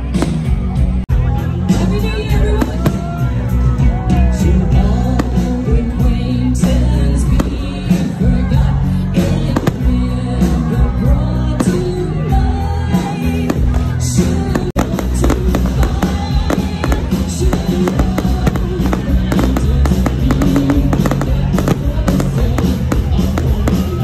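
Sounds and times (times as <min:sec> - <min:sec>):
fireworks bangs and crackles: 0:00.0 - 0:01.0, 0:04.8 - 0:08.6, 0:09.2 - 0:10.7, 0:13.1 - 0:24.0
loud music with singing: 0:00.0 - 0:24.0.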